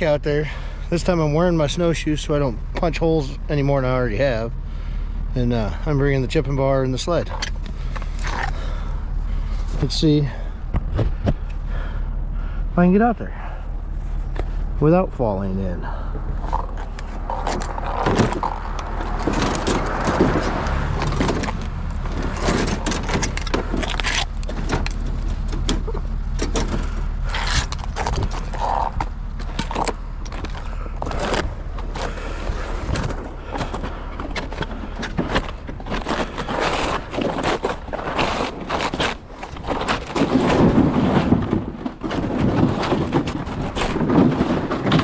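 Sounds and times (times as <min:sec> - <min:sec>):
gear rattling: 0:13.4 - 0:45.0
plastic sled scraping: 0:15.7 - 0:45.0.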